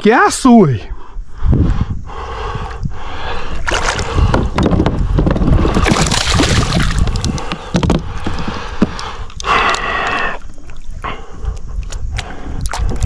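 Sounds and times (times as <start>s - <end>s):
wind buffeting microphone: 0.9s - 9.6s, 10.8s - 13.0s
knocks and clatter: 4.3s - 5.6s, 7.5s - 9.0s.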